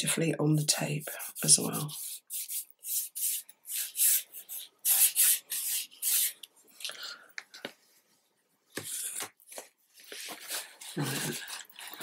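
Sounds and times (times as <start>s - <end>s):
fingertip rubbing wax on tape: 1.2s - 6.4s.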